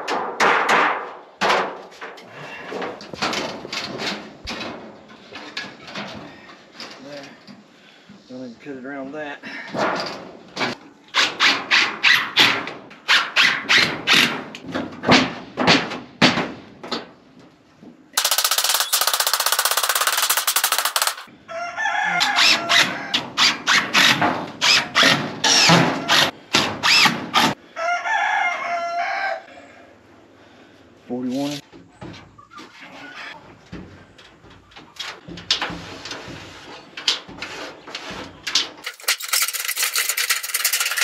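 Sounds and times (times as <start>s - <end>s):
impact driver rattling: 18.2s - 21.3s, 38.8s - 41.0s
rooster crowing: 21.4s - 23.2s, 27.7s - 29.6s
chickens clucking: 31.8s - 35.0s.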